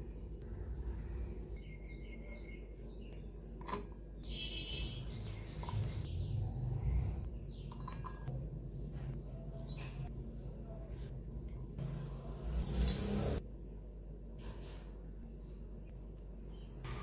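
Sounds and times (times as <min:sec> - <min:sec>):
steady low hum: 0:00.0 - 0:03.6, 0:04.9 - 0:17.0
faint bird chirps: 0:01.6 - 0:03.3.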